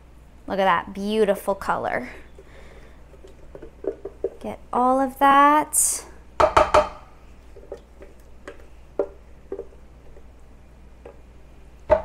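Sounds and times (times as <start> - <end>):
sharp knocks on blender jar: 6.4 - 7.0.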